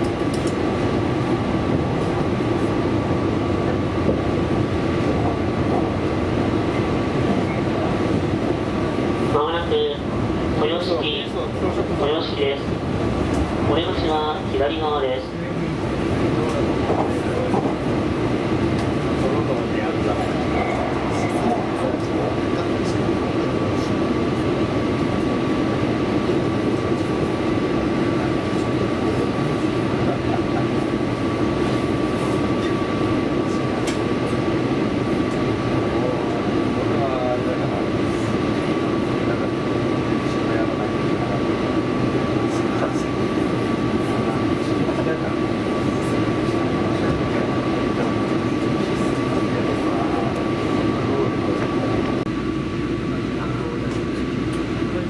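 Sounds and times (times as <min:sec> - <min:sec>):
train running rumble: 0:00.0 - 0:55.0.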